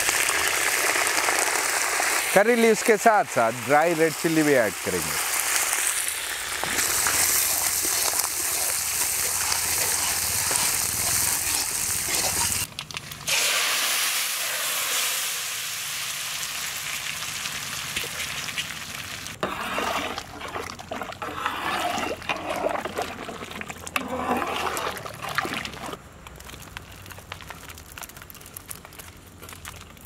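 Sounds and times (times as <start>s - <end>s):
hot oil sizzling in a wok: 0.0s - 12.7s, 13.3s - 19.4s.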